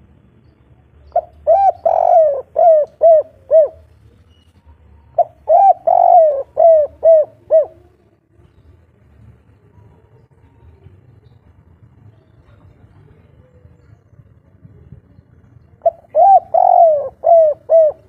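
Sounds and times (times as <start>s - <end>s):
dove cooing: 1.1s - 4.0s, 5.1s - 8.2s, 15.8s - 18.0s.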